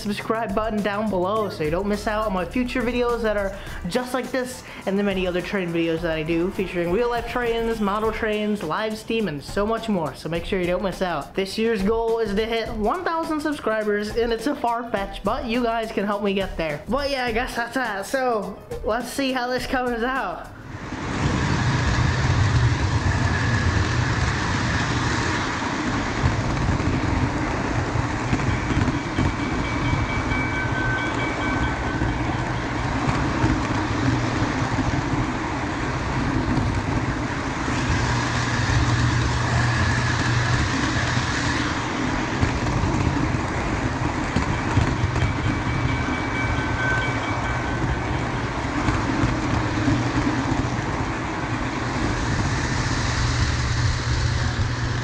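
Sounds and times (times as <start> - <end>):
model train rolling on track: 0.0 - 55.0
wheels clacking over rail joints: 20.7 - 55.0.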